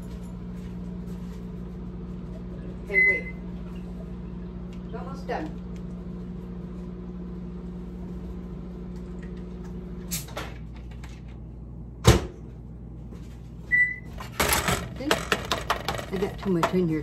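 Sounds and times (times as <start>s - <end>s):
microwave oven humming: 0.0s - 17.0s.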